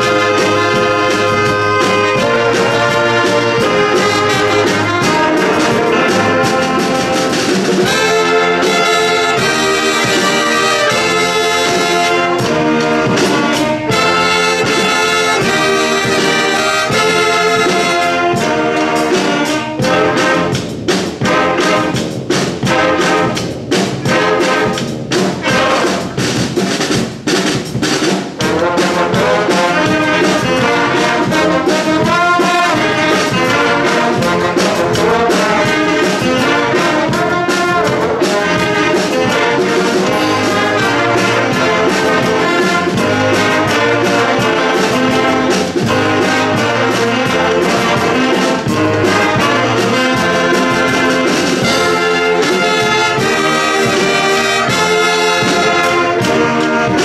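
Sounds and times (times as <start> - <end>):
big band playing: 0.0 - 57.0.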